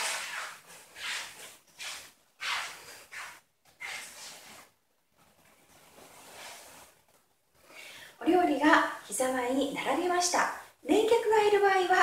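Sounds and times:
feet swishing on straw mats: 0:00.0 - 0:04.6
clothing rustling: 0:00.0 - 0:07.7.

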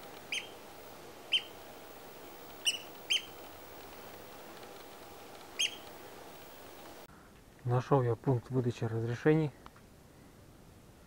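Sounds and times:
faint background hiss: 0:00.0 - 0:11.0
bird calling sharp high calls: 0:00.3 - 0:00.6, 0:01.3 - 0:01.6, 0:02.6 - 0:03.4, 0:05.5 - 0:05.9.

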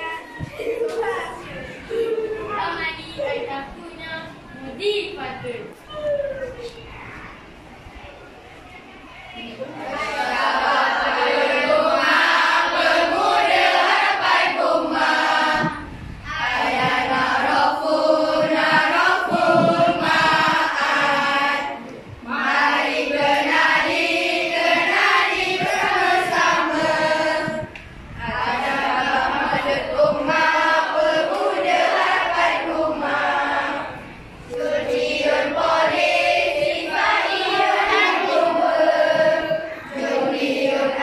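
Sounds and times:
children singing in unison: 0:09.8 - 0:41.0.

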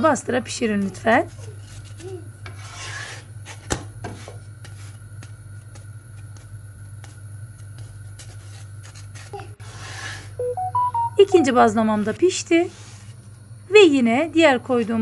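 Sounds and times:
spatula rubbing flatbread in pan: 0:00.6 - 0:05.1, 0:05.7 - 0:10.3, 0:12.5 - 0:13.2.

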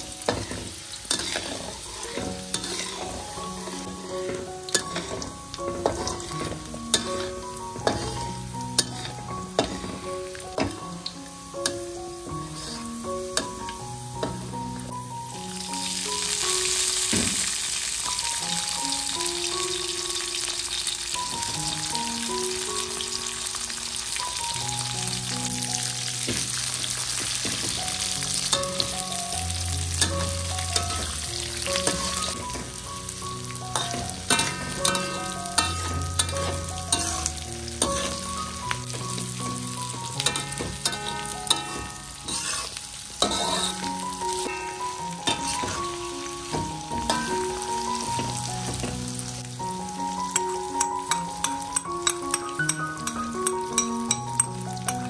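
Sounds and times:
food sizzling in hot oil: 0:00.0 - 0:55.0
light plucked background music: 0:00.0 - 0:55.0
spatula scraping a pan: 0:00.2 - 0:10.8, 0:12.5 - 0:13.0, 0:30.0 - 0:32.8, 0:33.7 - 0:44.0, 0:45.2 - 0:46.0.

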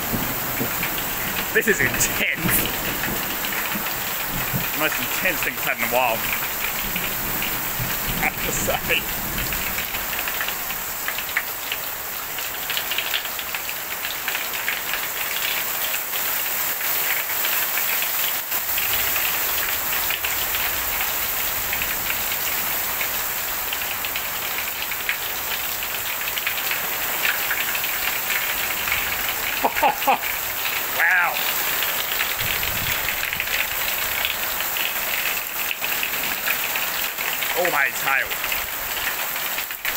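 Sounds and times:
hail and heavy rain on a roof: 0:00.0 - 0:39.9.

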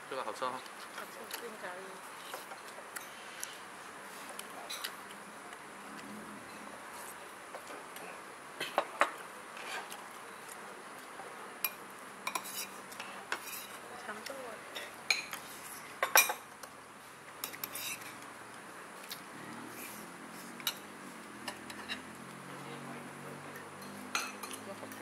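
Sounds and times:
cutlery clinking on plates: 0:11.6 - 0:13.8, 0:14.7 - 0:15.4, 0:16.0 - 0:16.5, 0:20.6 - 0:22.1, 0:23.6 - 0:24.7.

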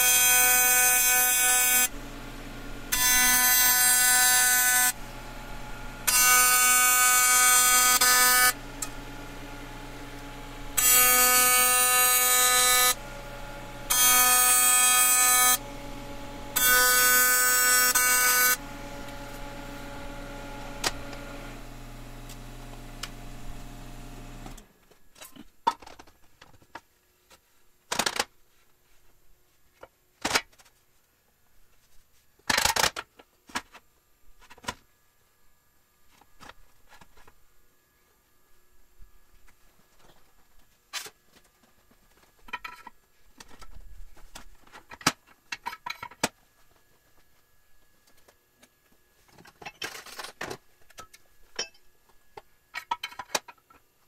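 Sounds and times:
welding arc buzzing: 0:00.0 - 0:24.6
machine hum: 0:01.6 - 0:24.7.

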